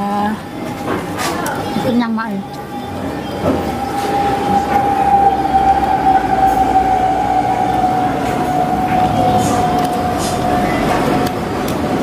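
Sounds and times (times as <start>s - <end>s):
rumbling street noise: 0.0s - 12.0s
whistle-like tone falling in pitch: 3.5s - 11.2s.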